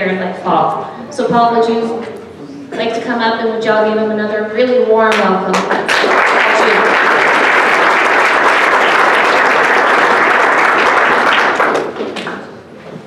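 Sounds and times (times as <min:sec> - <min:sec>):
audience applauding: 0:05.5 - 0:12.6.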